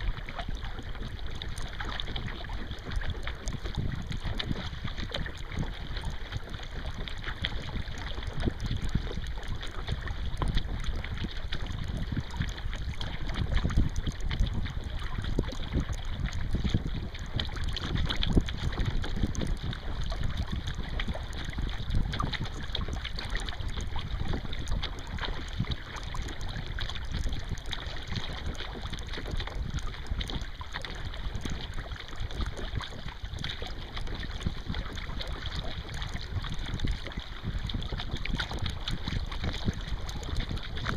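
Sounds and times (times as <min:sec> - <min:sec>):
paddle splashing water: 0:00.0 - 0:40.9
wind rumbling on microphone: 0:00.0 - 0:40.9.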